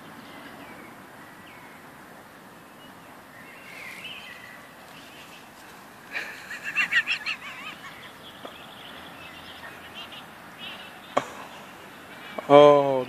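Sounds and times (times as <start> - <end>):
small birds chirping: 0.0 - 13.0
geese honking: 6.1 - 8.2.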